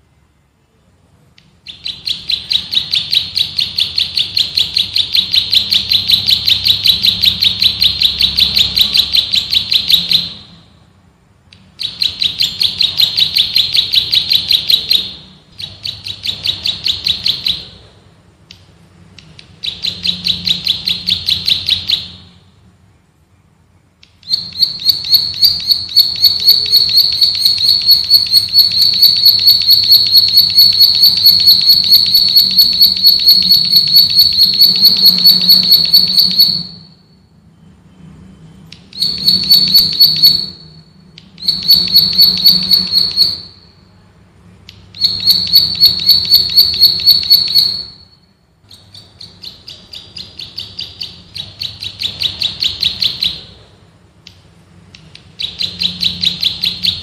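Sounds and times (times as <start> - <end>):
bird trilling: 1.6 - 10.6, 11.8 - 17.8, 19.6 - 22.3, 24.2 - 37.1, 38.8 - 43.8, 44.9 - 53.6.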